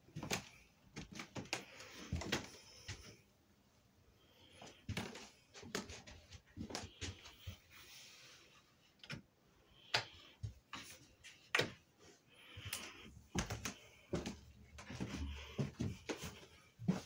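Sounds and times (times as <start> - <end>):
footsteps on carpeted stairs: 0.1 - 3.2, 4.6 - 7.8, 12.5 - 17.0.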